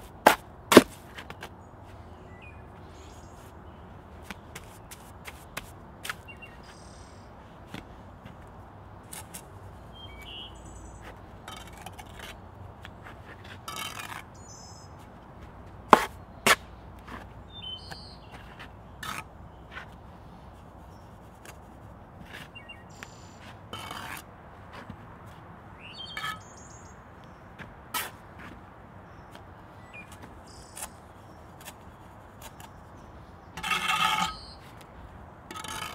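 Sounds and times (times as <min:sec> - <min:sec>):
trowel knocking and scraping mortar: 0:00.2 - 0:01.3, 0:11.5 - 0:12.4, 0:13.4 - 0:14.3, 0:15.9 - 0:17.2, 0:23.7 - 0:24.9, 0:33.6 - 0:34.4, 0:35.5 - 0:35.9
birds chirping faintly: 0:01.2 - 0:07.4, 0:09.6 - 0:13.2, 0:13.8 - 0:15.2, 0:16.0 - 0:24.1, 0:25.6 - 0:35.9.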